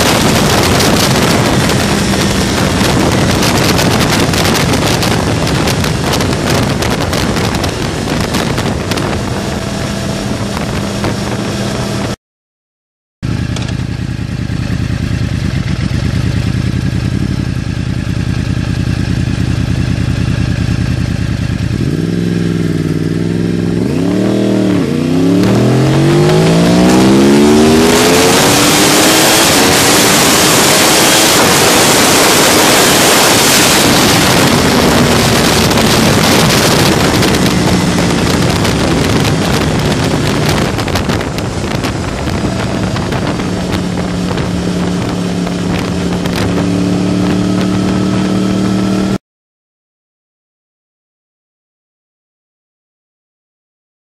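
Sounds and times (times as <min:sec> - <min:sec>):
motorcycle engine revving: 0:00.0 - 0:12.2, 0:13.2 - 0:49.2
wind rush: 0:00.0 - 0:12.2, 0:21.8 - 0:49.2.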